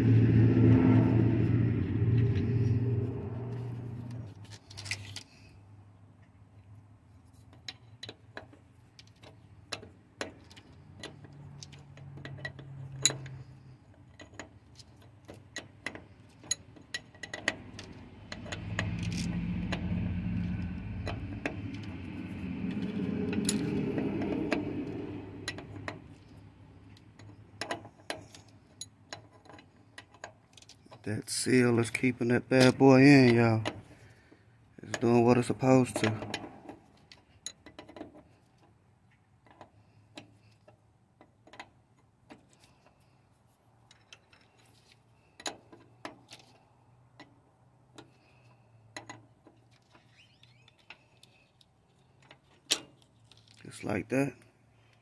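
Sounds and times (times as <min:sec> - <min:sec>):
vehicle engine running: 0:00.0 - 0:04.5, 0:17.4 - 0:27.3.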